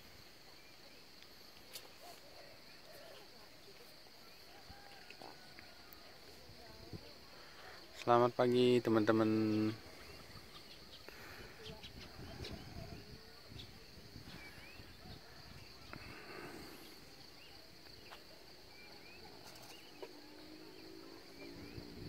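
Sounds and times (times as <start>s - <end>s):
high-pitched insect drone: 18.8s - 22.0s.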